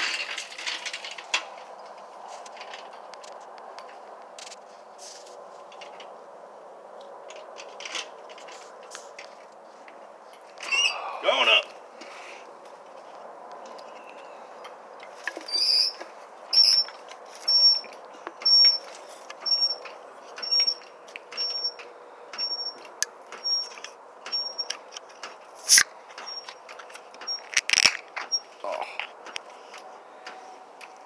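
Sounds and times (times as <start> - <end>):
floor jack squeaking: 15.3 - 18.8.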